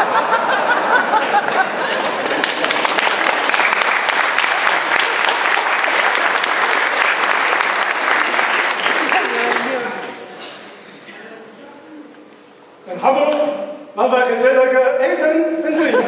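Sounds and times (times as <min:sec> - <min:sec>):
audience applauding: 0:01.0 - 0:10.2.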